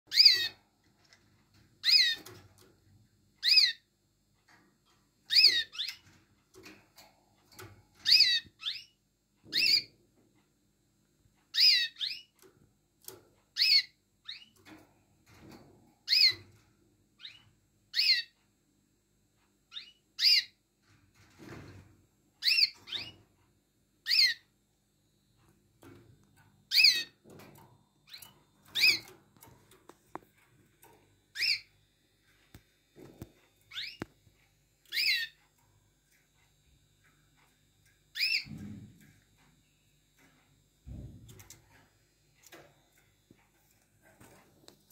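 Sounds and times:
canaries whistling call notes: 0:00.1 - 0:00.6, 0:03.4 - 0:03.8, 0:05.3 - 0:06.0, 0:08.0 - 0:08.9, 0:09.5 - 0:09.9, 0:11.5 - 0:12.3, 0:13.6 - 0:14.5, 0:16.1 - 0:16.4, 0:17.2 - 0:18.3, 0:19.7 - 0:20.5, 0:22.4 - 0:23.1, 0:24.0 - 0:24.4, 0:26.7 - 0:27.1, 0:28.1 - 0:29.1, 0:31.4 - 0:31.7, 0:33.7 - 0:34.1, 0:34.9 - 0:35.4, 0:38.1 - 0:38.6.

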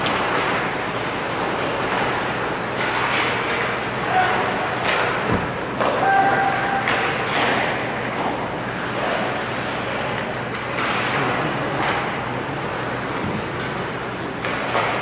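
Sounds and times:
hockey play and spectator noise: 0:00.0 - 0:15.0
person shouting: 0:05.9 - 0:06.8.

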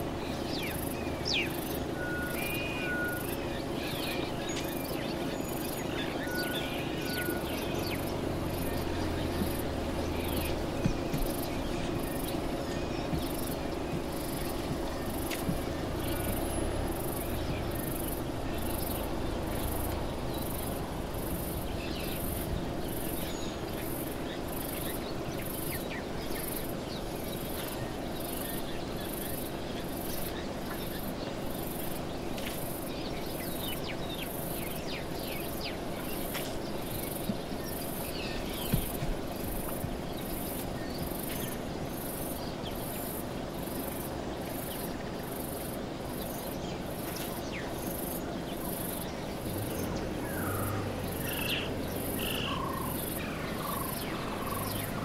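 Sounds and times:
insect chirping: 0:00.0 - 0:55.0
steady background hiss: 0:00.0 - 0:55.0
low rumble: 0:07.4 - 0:22.9.

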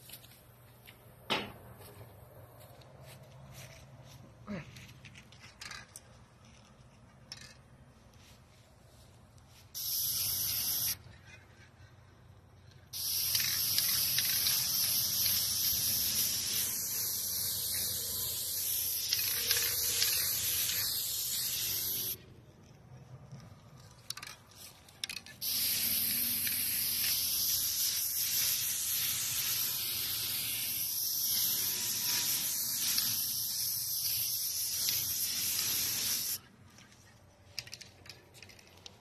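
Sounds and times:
aerosol spray can hissing: 0:09.7 - 0:11.0, 0:12.9 - 0:22.2, 0:25.4 - 0:36.4.

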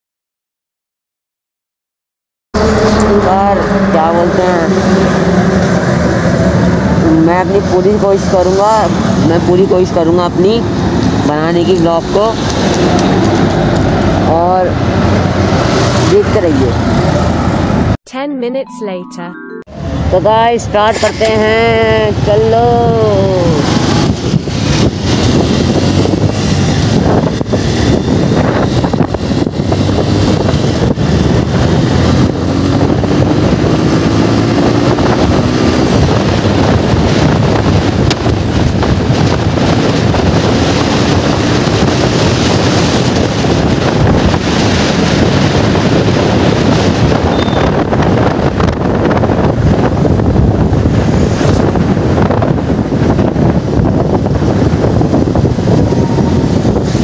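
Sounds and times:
wind rushing over microphone: 0:02.6 - 0:18.0, 0:19.7 - 0:57.0
motorcycle engine running: 0:23.1 - 0:57.0.

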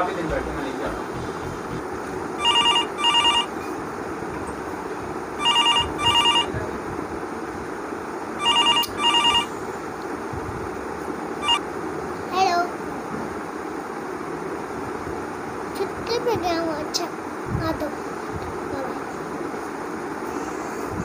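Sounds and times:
telephone ringing: 0:02.4 - 0:03.6, 0:05.4 - 0:06.6, 0:08.4 - 0:09.5, 0:11.4 - 0:11.6.

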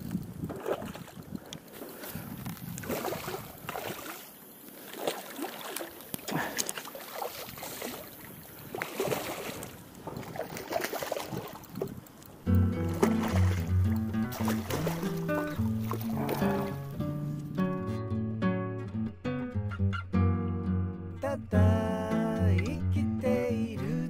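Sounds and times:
water splashing and sloshing: 0:00.0 - 0:17.4
music: 0:12.5 - 0:24.0.

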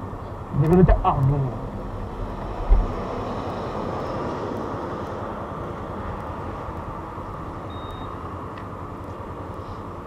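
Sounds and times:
wind noise on microphone: 0:00.8 - 0:04.5
faint high beep: 0:07.7 - 0:08.2.

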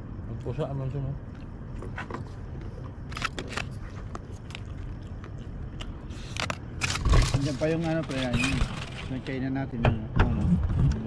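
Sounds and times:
chewing and crunching food: 0:01.2 - 0:08.2.

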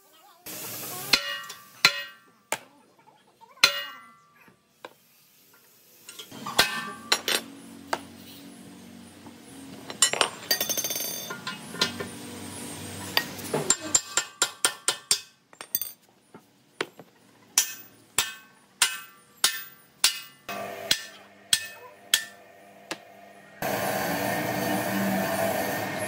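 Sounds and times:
hammer striking steel: 0:01.1 - 0:02.3, 0:03.6 - 0:04.2, 0:06.3 - 0:07.4, 0:13.2 - 0:15.9, 0:17.6 - 0:23.1.

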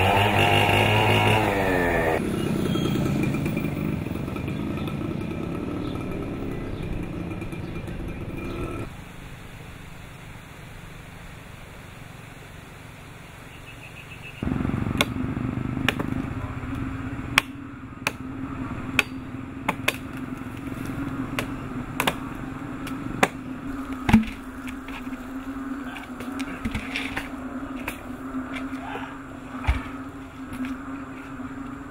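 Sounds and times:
machete chopping wood: 0:15.0 - 0:15.2, 0:15.8 - 0:16.3, 0:17.3 - 0:18.3, 0:18.9 - 0:24.8, 0:29.6 - 0:29.9.

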